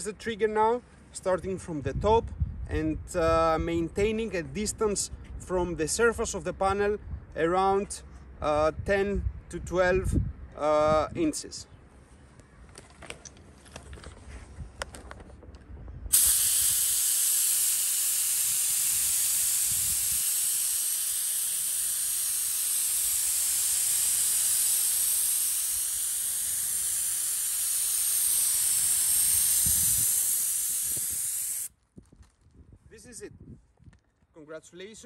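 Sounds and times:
spray gun hissing: 0:16.1 - 0:31.7.

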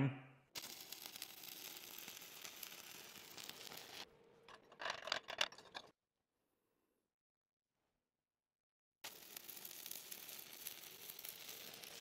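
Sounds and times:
welding arc crackling sizzle: 0:00.5 - 0:04.7, 0:09.0 - 0:12.0
sharp crackles and scrapes: 0:00.6 - 0:06.0, 0:09.0 - 0:12.0.

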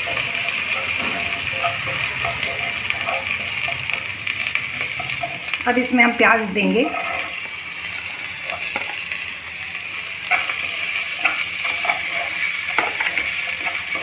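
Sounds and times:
wooden spatula scraping pan: 0:00.0 - 0:05.6, 0:06.6 - 0:09.0, 0:10.2 - 0:14.0
onions sizzling in hot oil: 0:00.0 - 0:14.0.

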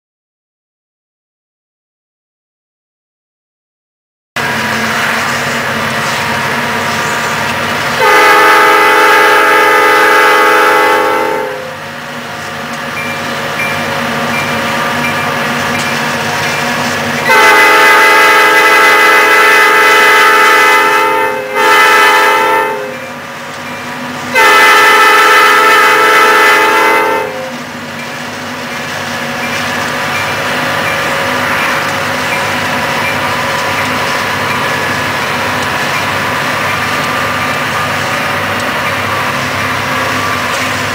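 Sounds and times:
locomotive engines and train droning: 0:04.4 - 0:40.9
locomotive air horn blasts: 0:08.0 - 0:11.8, 0:17.2 - 0:23.2, 0:24.3 - 0:27.7.

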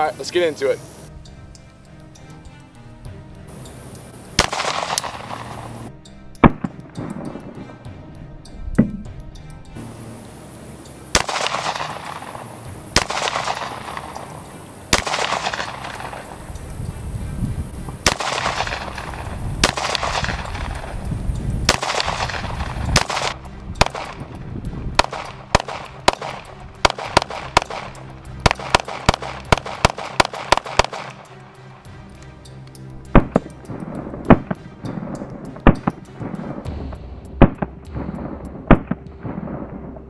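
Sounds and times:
pistol shots with echo: 0:04.4 - 0:05.8, 0:11.1 - 0:16.5, 0:18.0 - 0:21.0, 0:21.6 - 0:24.3, 0:25.0 - 0:31.2.

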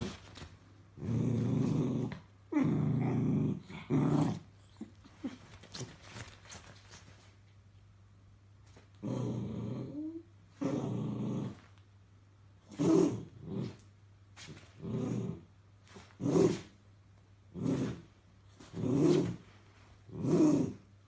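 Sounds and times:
small dog growling: 0:01.0 - 0:06.0, 0:09.0 - 0:11.7, 0:12.7 - 0:13.9, 0:14.5 - 0:16.8, 0:17.5 - 0:19.5, 0:20.1 - 0:20.9.

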